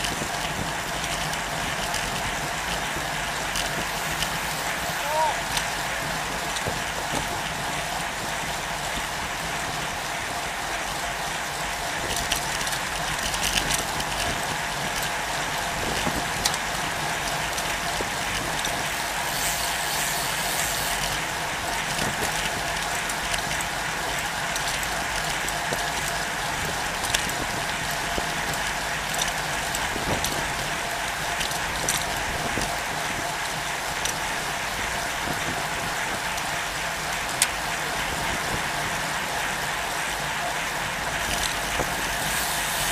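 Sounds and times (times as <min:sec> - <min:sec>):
bicycle clicks and rattles: 0:00.0 - 0:42.9
bicycle road and wind noise: 0:00.0 - 0:42.9.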